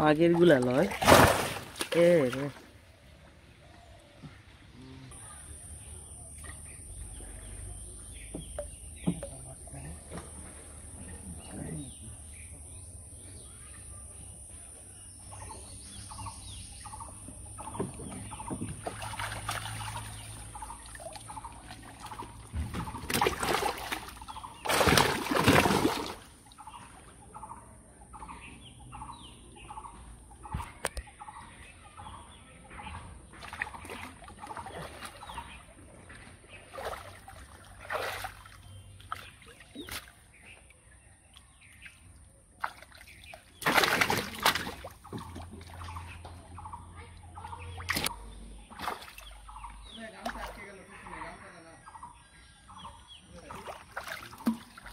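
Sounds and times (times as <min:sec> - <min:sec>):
fish thrashing in water: 0:00.6 - 0:02.5, 0:18.2 - 0:26.7, 0:33.3 - 0:40.3, 0:42.6 - 0:46.3, 0:47.7 - 0:49.6, 0:53.5 - 0:54.9.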